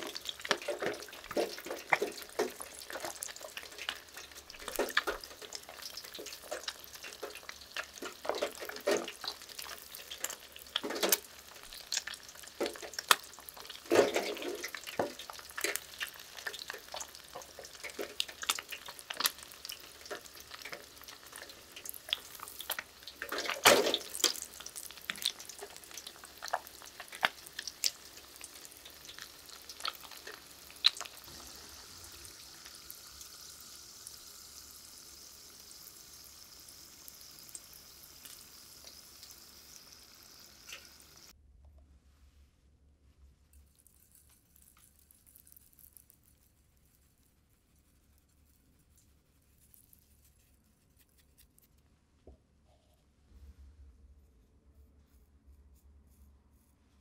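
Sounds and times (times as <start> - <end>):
fish deep-frying in oil: 0.0 - 41.4.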